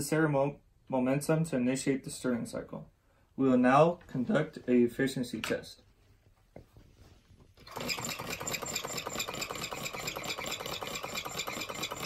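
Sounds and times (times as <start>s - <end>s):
small engine mechanical rattle: 7.6s - 12.0s.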